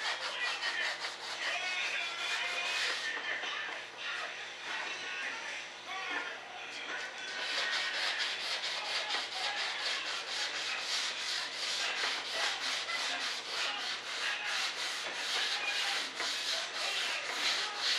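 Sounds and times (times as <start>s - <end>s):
sandpaper rubbing back and forth: 0.0s - 3.2s, 7.3s - 17.9s.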